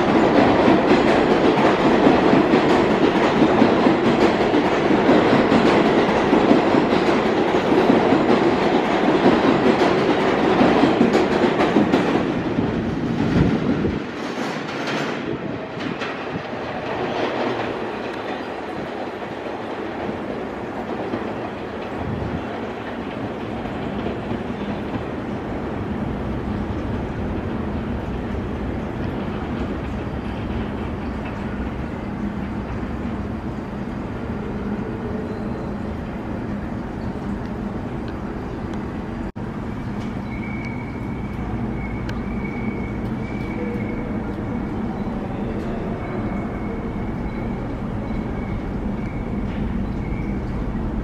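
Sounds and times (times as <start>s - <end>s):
subway train rumbling: 0.0s - 51.0s
faint high squeal: 40.2s - 50.6s.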